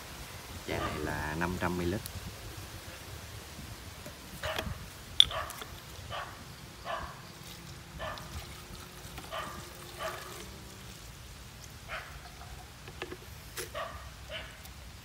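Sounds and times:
dog yelping: 5.3s - 7.2s
liquid trickling into a bottle: 7.3s - 13.8s.

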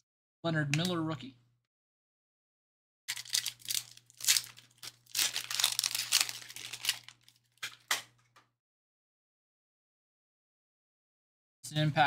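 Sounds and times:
foil wrapper crinkling and tearing: 3.1s - 7.9s.

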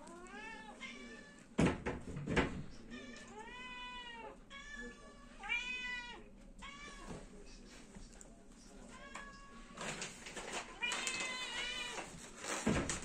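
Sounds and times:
cat meowing: 2.9s - 7.1s, 10.8s - 12.1s.

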